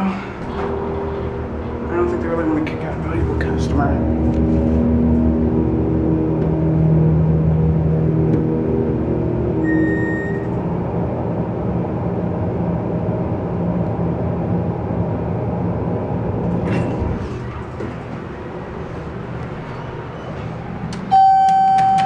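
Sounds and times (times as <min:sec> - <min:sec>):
elevator machinery humming: 0:00.0 - 0:22.0
short high beep: 0:09.6 - 0:10.6.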